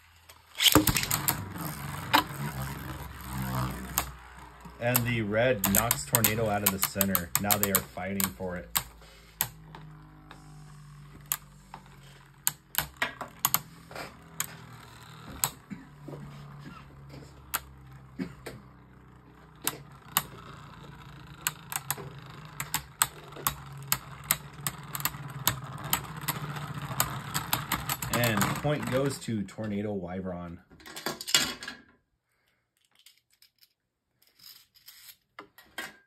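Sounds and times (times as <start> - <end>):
spinning tops whirring: 0.0 - 29.8
spinning tops clacking together: 0.6 - 29.1.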